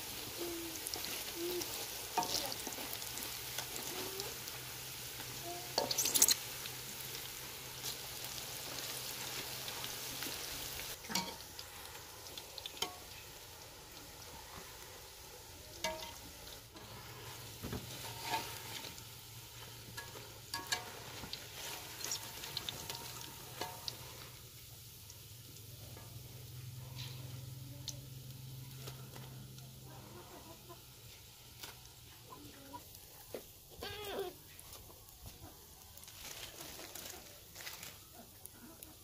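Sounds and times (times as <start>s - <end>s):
frying in oil sizzling: 0.0s - 39.0s
utensils scraping and knocking pan: 16.8s - 19.0s.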